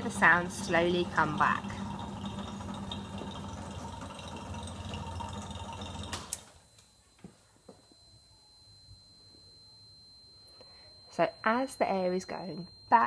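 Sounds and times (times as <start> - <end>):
vacuum pump humming: 0.0 - 6.8
high buzzer tone: 0.0 - 13.0.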